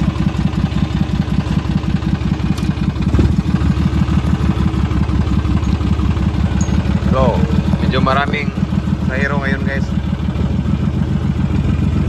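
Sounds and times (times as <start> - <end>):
vehicle engine idling: 0.0 - 12.0.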